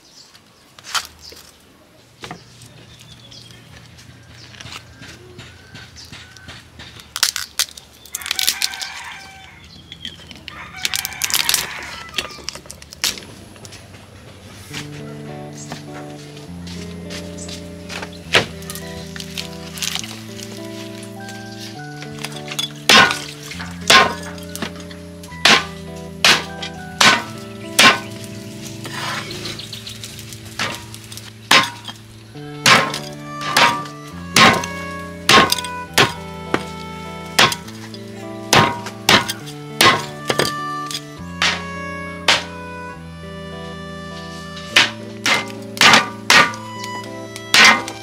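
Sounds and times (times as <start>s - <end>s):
rooster crowing: 4.0s - 6.8s, 8.2s - 9.8s, 10.4s - 12.6s
lobster shell cracking: 7.0s - 9.2s, 10.8s - 11.8s.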